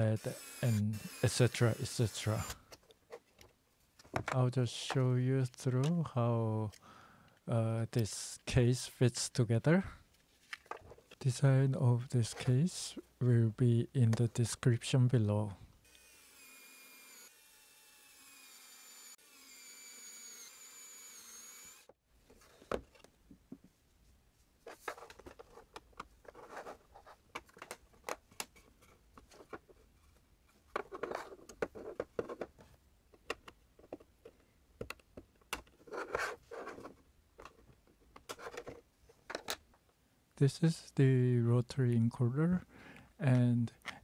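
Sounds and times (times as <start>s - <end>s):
plastic parts clicking and tapping: 2.7s - 5.0s, 24.7s - 29.8s, 30.7s - 39.9s
plastic parts rubbing: 24.6s - 39.6s.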